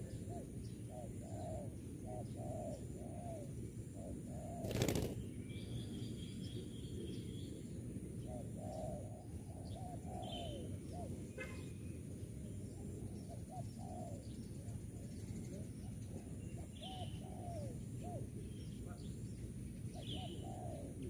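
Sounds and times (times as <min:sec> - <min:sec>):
dove cooing: 0:00.0 - 0:05.1, 0:08.2 - 0:11.2, 0:13.2 - 0:14.3, 0:16.1 - 0:18.4, 0:20.0 - 0:21.0
small birds chirping: 0:04.0 - 0:21.0.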